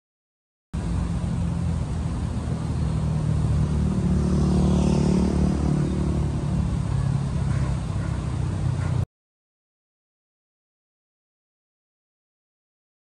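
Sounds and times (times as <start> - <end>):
vehicle engine humming: 0.8 - 9.1.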